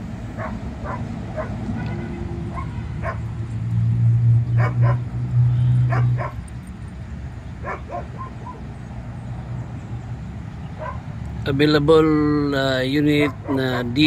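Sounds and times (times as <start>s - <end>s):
dog barking: 0.4s - 1.6s, 2.5s - 3.2s, 4.6s - 5.0s, 5.9s - 6.4s, 7.6s - 8.6s, 10.8s - 11.0s, 13.2s - 13.8s.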